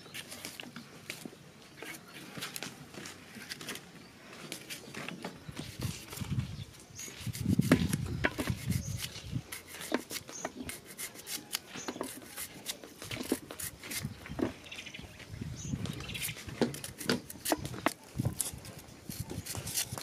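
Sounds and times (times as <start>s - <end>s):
knife crunching through onion: 7.0s - 14.2s, 16.2s - 20.0s.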